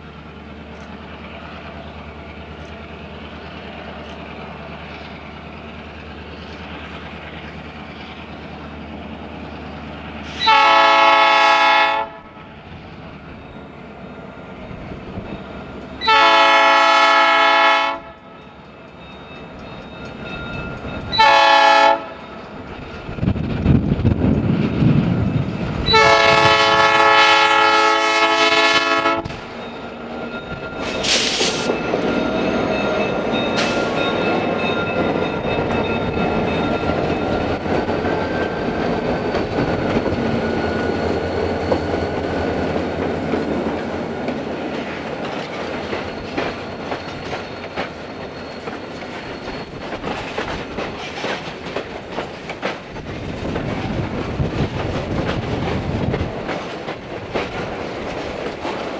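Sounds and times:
diesel locomotive engine: 0:00.0 - 0:58.9
locomotive air horn: 0:10.2 - 0:12.4, 0:16.0 - 0:18.2, 0:21.1 - 0:22.2, 0:25.9 - 0:29.4
wheels clicking over rail joints: 0:29.2 - 0:58.9.

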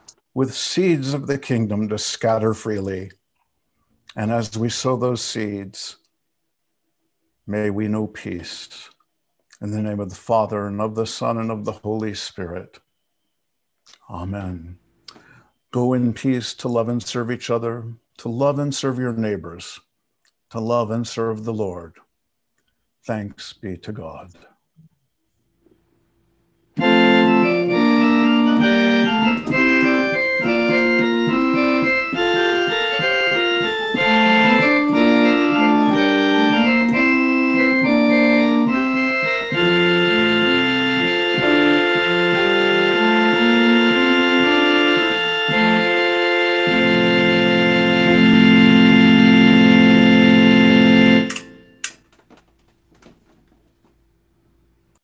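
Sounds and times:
organ music: 0:00.0 - 0:03.2, 0:04.1 - 0:06.0, 0:26.2 - 0:52.0.

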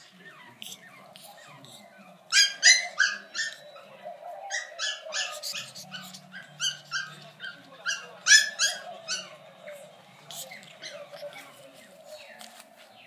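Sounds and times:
puppy yapping: 0:02.3 - 0:09.4.

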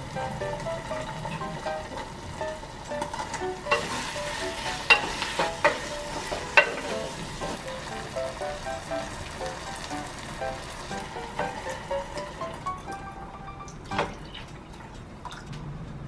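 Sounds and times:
sauce sizzling: 0:00.0 - 0:14.6
spoon stirring and scraping pan: 0:03.7 - 0:07.6.

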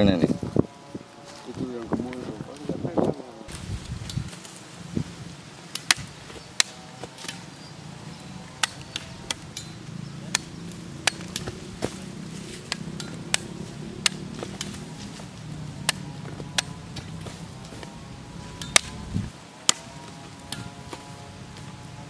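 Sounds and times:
machete chopping: 0:05.7 - 0:07.6, 0:08.5 - 0:21.1.

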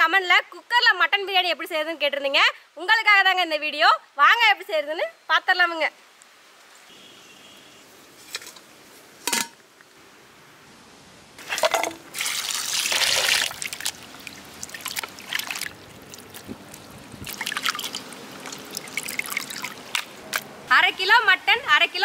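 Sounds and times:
water splashing in bowl: 0:11.4 - 0:20.5
water dripping: 0:11.5 - 0:20.6.

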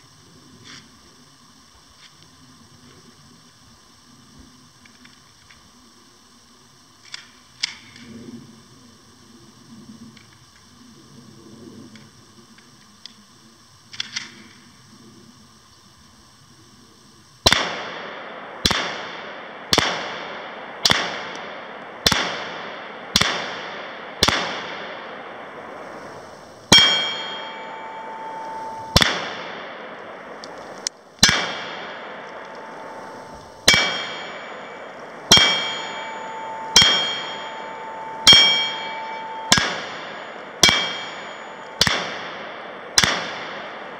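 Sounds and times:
rifle shots: 0:17.4 - 0:25.6, 0:26.7 - 0:43.9
steel target plate ringing: 0:26.7 - 0:29.9, 0:31.2 - 0:42.5.

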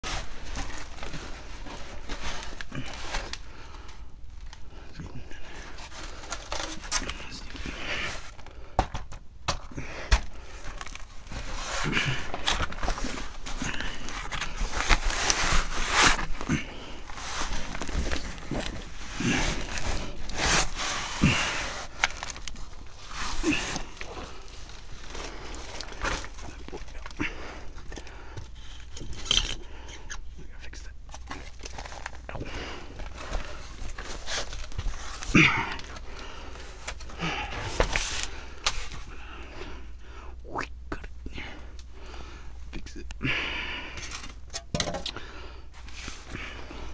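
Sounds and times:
scraping and rustling on cardboard: 0:00.0 - 0:03.6, 0:10.1 - 0:27.2, 0:31.1 - 0:39.1
low steady hum: 0:00.0 - 0:46.9.

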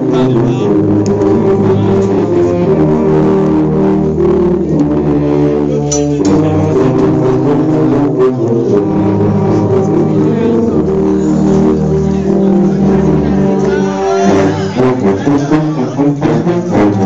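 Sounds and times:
sousaphones playing: 0:00.0 - 0:17.0.

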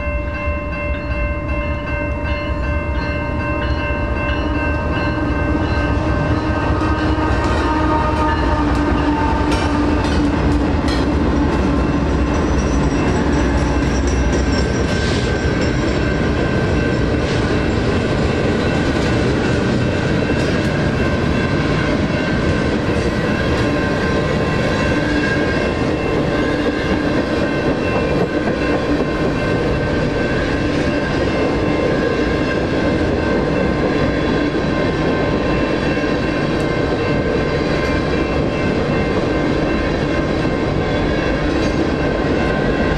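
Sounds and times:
crossing bells ringing: 0:00.0 - 0:42.9
diesel locomotives rumbling: 0:00.0 - 0:42.9
train wheels clattering on rails: 0:02.3 - 0:42.9.

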